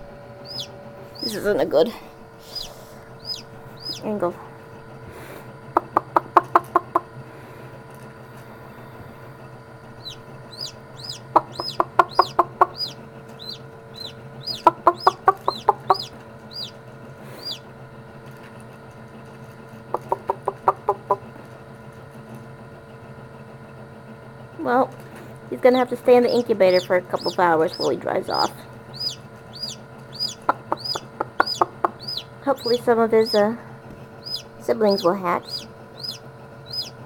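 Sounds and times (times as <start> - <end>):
chick peeping: 0.0 - 4.4, 5.7 - 7.1, 10.0 - 17.7, 20.0 - 21.3, 25.6 - 33.6, 34.2 - 37.0
incubator humming: 0.0 - 37.0
chicken clucking: 0.5 - 1.5, 2.4 - 4.1, 5.8 - 7.1, 10.0 - 16.8, 17.4 - 17.6, 19.9 - 21.3, 25.7 - 33.6, 34.2 - 37.0.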